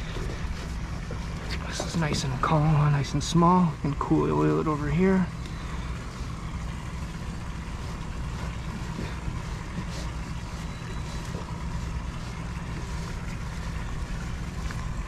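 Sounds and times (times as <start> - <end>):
boat machinery humming: 0.0 - 15.0
rope scuffing on cleat: 7.4 - 15.0.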